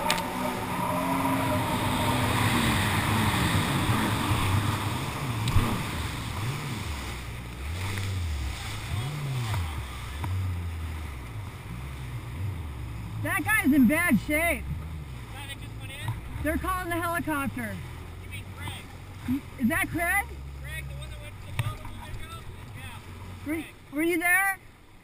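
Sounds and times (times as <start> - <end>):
water spray rushing: 0.0 - 10.6
jet ski engine: 0.0 - 25.0.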